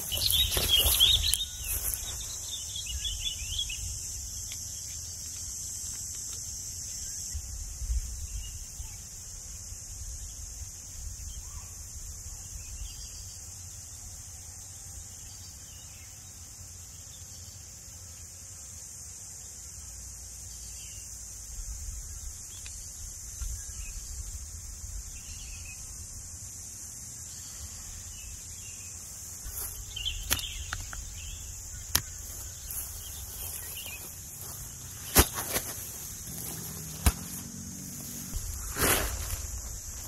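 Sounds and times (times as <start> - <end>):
crickets chirping: 0.0 - 40.0
wind rumble on microphone: 7.4 - 13.0.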